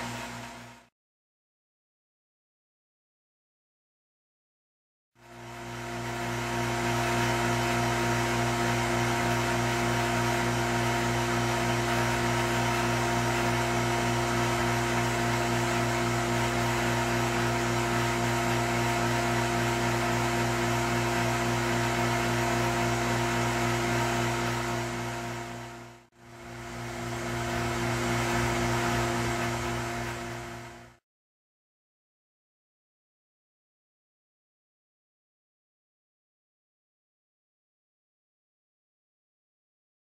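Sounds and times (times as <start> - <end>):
electrical hum: 5.4 - 31.0.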